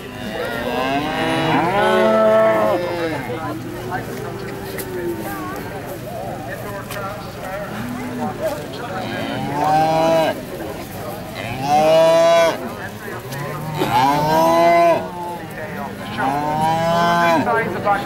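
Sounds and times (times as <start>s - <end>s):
cattle mooing: 0.0s - 3.7s, 8.9s - 10.4s, 11.4s - 12.6s, 13.2s - 15.3s, 16.0s - 18.0s.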